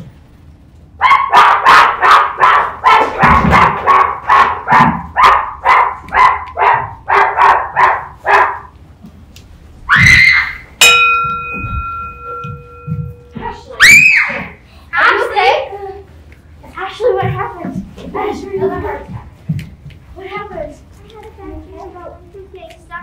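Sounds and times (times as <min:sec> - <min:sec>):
dog barking fast: 0:01.0 - 0:08.7
loud cry: 0:09.9 - 0:10.7, 0:13.8 - 0:14.6
steady ringing tone: 0:10.7 - 0:13.8.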